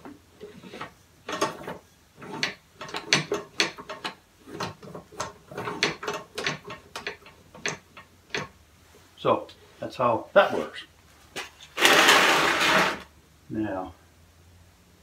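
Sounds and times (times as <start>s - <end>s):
air engine parts clacking: 0.0s - 8.6s.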